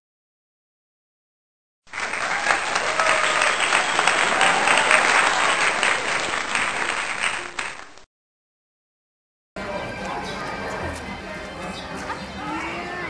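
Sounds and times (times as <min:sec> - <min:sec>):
voices cheering: 0:01.9 - 0:07.6
crowd applauding: 0:01.9 - 0:08.1.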